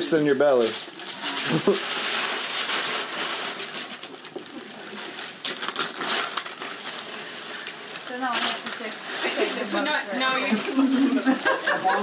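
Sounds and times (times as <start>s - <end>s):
wrapping paper rustling and tearing: 0.0s - 12.0s.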